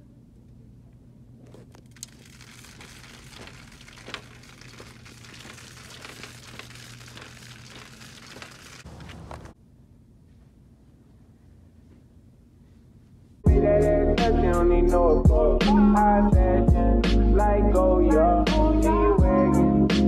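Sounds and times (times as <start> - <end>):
low steady hum: 0.0 - 13.8
shopping cart wheels rolling: 1.7 - 9.6.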